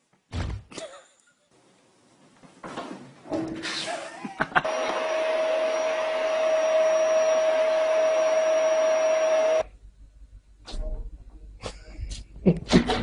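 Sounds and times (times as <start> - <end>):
small electric motor whirring: 4.7 - 9.6.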